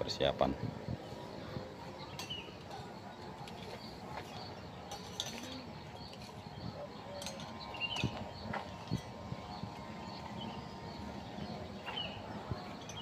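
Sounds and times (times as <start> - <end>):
bird chirps: 1.0 - 13.0
utensils and dishes clinking: 2.1 - 6.4, 7.1 - 9.2.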